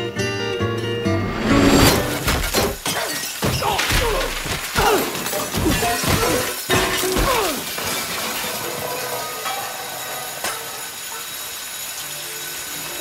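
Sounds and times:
glass shattering: 1.2 - 13.0
bodies slamming into walls: 1.8 - 7.6
pots and pans clattering: 1.8 - 13.0.

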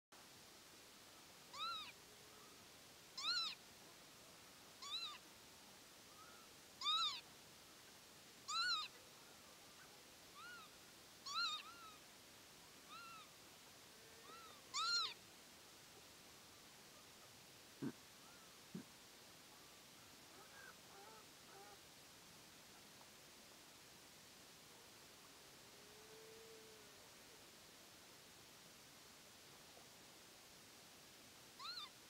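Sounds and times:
lapwing calling: 1.5 - 2.0, 3.2 - 3.6, 4.8 - 5.2, 6.1 - 7.2, 8.5 - 9.0, 10.4 - 12.0, 12.9 - 13.3, 14.2 - 15.2, 31.6 - 32.0.

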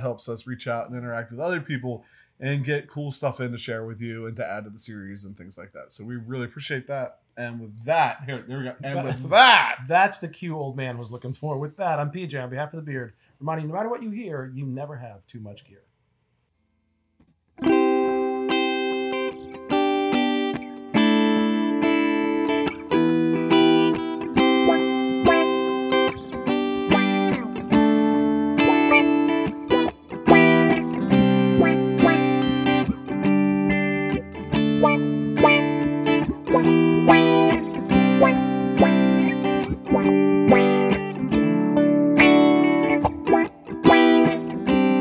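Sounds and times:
electric guitars with auto-wah: 17.6 - 45.0.

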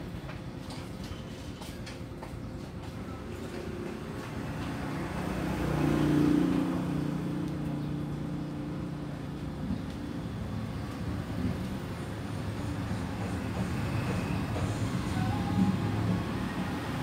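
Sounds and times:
background traffic noise: 0.0 - 17.0
vehicle passing by: 3.5 - 9.6.

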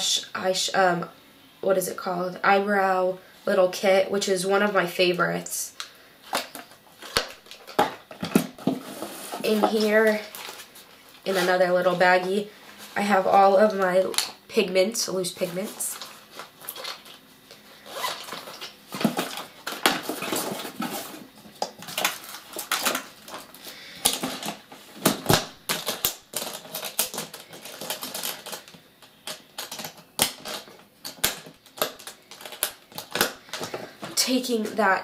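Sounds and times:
plastic jars clicking and clattering: 18.1 - 34.2.

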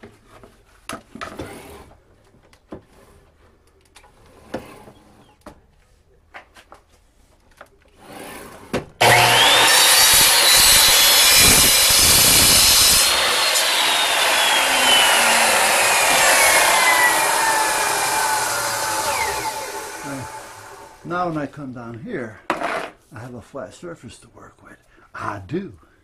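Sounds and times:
electric power saw cutting: 9.0 - 21.1.

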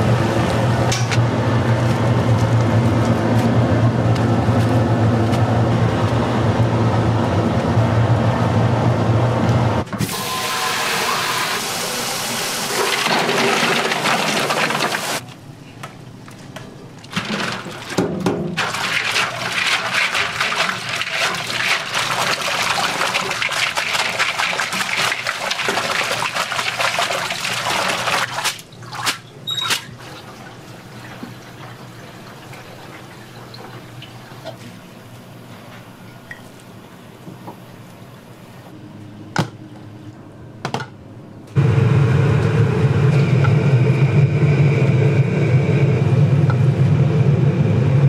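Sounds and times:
water running and splashing: 12.5 - 15.2, 18.6 - 29.2.

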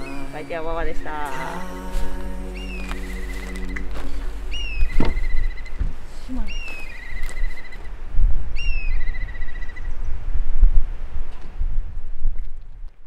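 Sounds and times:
songbird whistling and trilling: 2.5 - 5.8, 8.6 - 9.9
wind rumble on microphone: 2.6 - 13.0.

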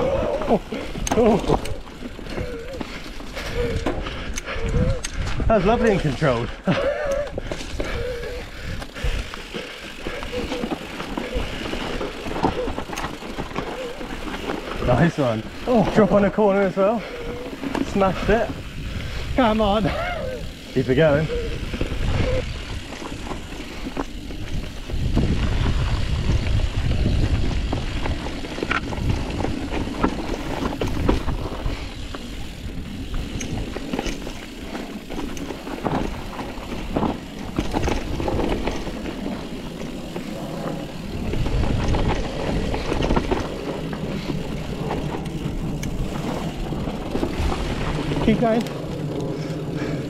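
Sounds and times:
bike knocking over roots: 0.0 - 4.3, 7.2 - 18.6, 21.0 - 50.0
wind rumble on microphone: 0.0 - 6.0, 17.2 - 20.6, 21.2 - 34.2, 40.3 - 50.0
bike rattling: 0.0 - 50.0
bike tyres rolling over dirt: 0.0 - 50.0.

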